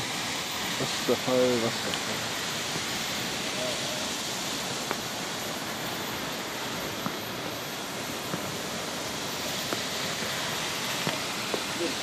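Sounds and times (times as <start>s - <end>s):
waterfall roaring: 0.0s - 12.0s
footsteps on stone steps: 6.9s - 7.3s, 8.2s - 8.7s, 11.0s - 11.8s.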